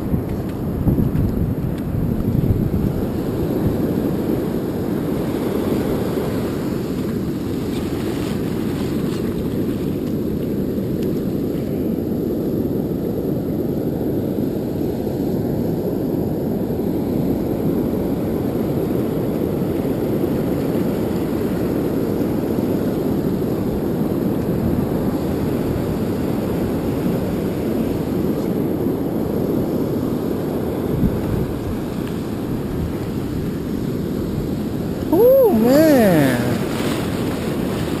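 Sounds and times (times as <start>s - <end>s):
wind on microphone: 0.0s - 38.0s
surf breaking on beach: 30.8s - 38.0s.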